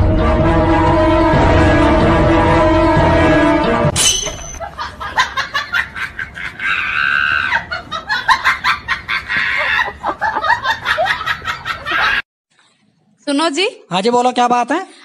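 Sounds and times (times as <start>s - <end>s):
high-pitched cackling laughter: 4.6s - 12.2s.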